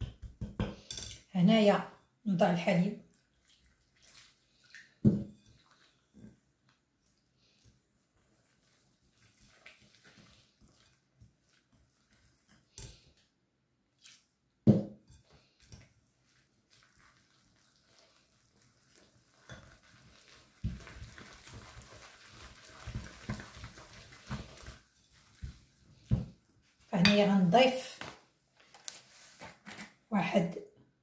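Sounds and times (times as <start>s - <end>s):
whisk beating batter in bowl: 7.6s - 12.7s, 15.1s - 26.3s.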